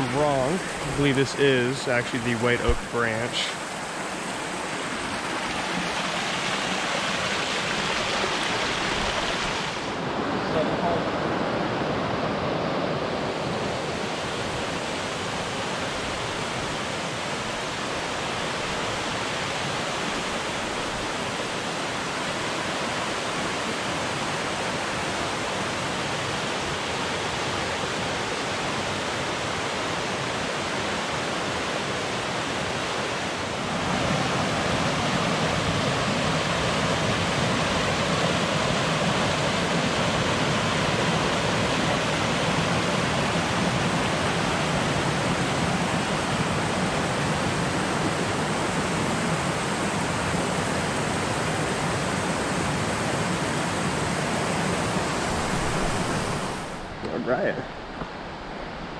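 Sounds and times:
creek rushing over rocks: 0:00.0 - 0:58.9.

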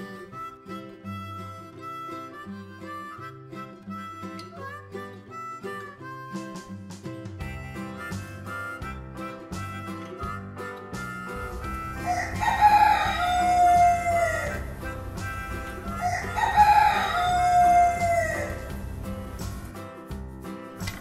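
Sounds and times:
light background music: 0:00.0 - 0:21.0
rooster crowing: 0:11.4 - 0:19.0.

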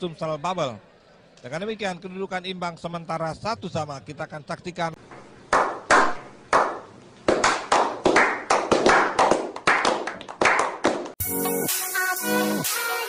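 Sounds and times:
men clapping hands: 0:05.5 - 0:11.2.

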